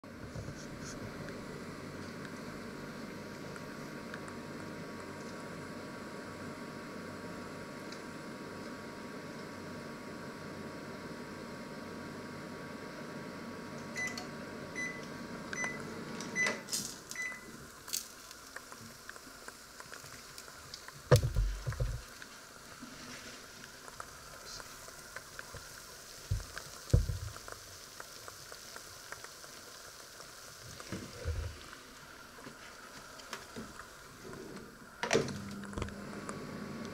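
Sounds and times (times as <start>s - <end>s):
microwave oven humming: 0.1s - 36.9s
oven door opening: 35.0s - 35.5s.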